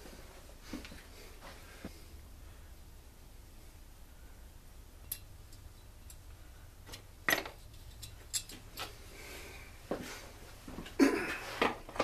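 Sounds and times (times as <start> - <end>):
metal parts clinking: 7.3 - 8.9
metal tools clattering: 7.3 - 8.9.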